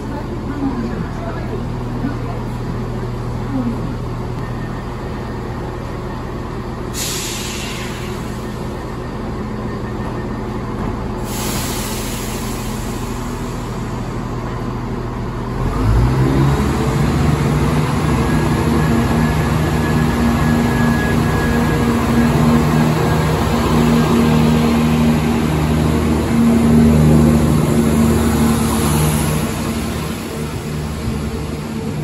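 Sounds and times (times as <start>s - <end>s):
diesel engine drone rising: 0.0s - 32.0s
diesel train idling: 0.0s - 32.0s
air hiss bursts: 11.2s - 13.6s.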